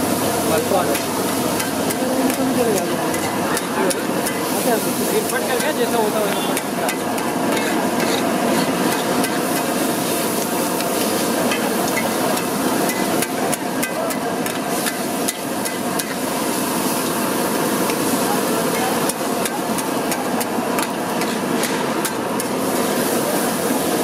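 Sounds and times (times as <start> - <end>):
sizzle of frying: 0.0 - 24.0
metal spatula scraping iron griddle: 0.8 - 16.5, 18.6 - 22.9.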